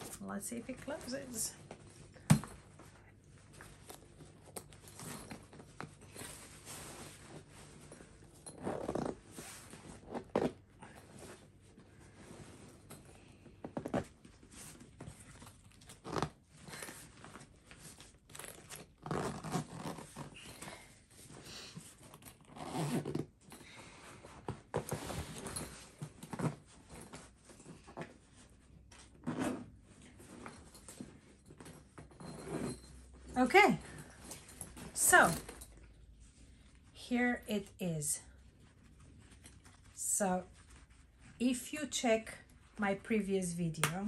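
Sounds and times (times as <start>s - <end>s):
zipper being pulled closed: 8.4s - 10.6s, 15.8s - 17.0s, 18.3s - 20.7s, 22.0s - 23.4s, 29.2s - 29.8s.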